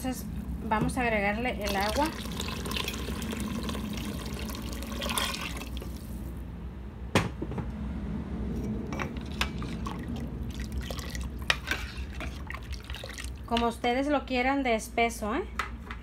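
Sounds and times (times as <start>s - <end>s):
water pouring into a pot: 1.6s - 6.2s, 9.2s - 13.5s.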